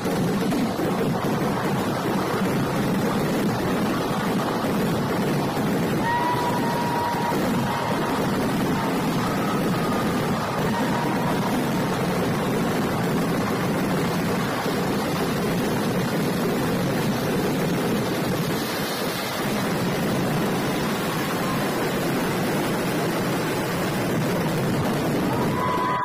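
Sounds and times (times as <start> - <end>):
fireworks rumble: 0.0 - 26.0.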